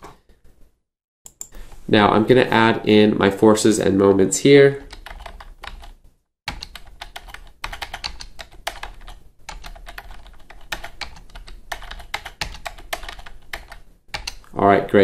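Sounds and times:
computer keyboard keys clicking: 0:04.8 - 0:14.4.

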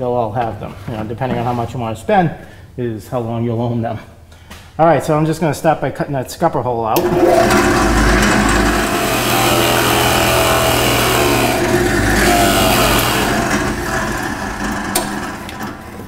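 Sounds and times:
drill bit boring wood: 0:07.0 - 0:16.0
drill press motor hum: 0:07.0 - 0:16.0.

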